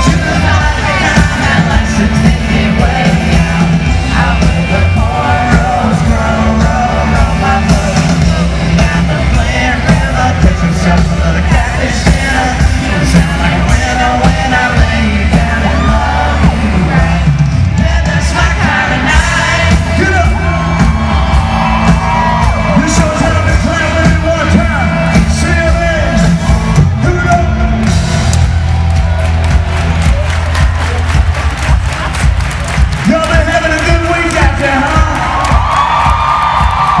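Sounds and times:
man singing: 0.0 - 21.0, 22.6 - 26.3, 33.0 - 35.7
country-rock band playing: 0.0 - 37.0
fans yelling along: 0.0 - 37.0.

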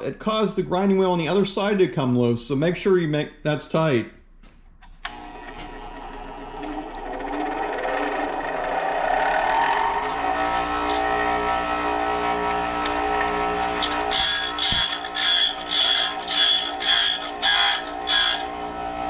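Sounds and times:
bench grinder humming: 5.1 - 19.0
electrode grinding rasps: 5.1 - 19.0.

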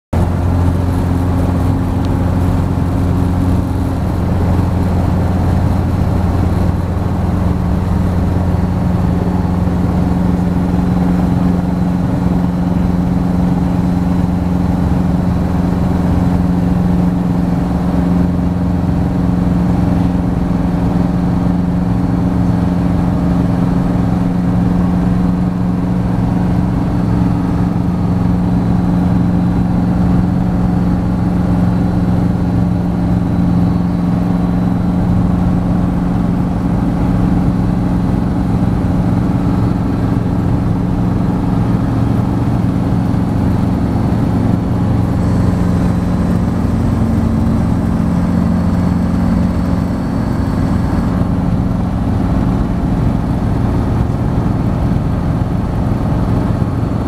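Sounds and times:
helicopter engine and rotors: 0.1 - 57.0.

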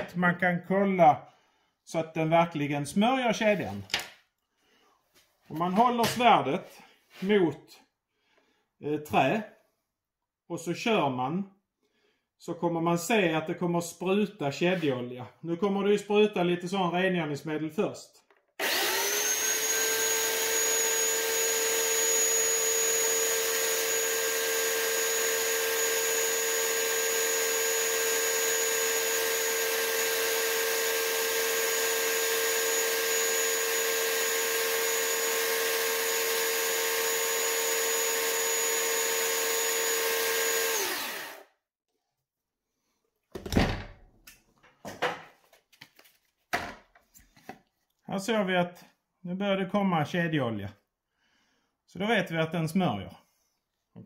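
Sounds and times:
electric chainsaw whining: 18.6 - 41.6.

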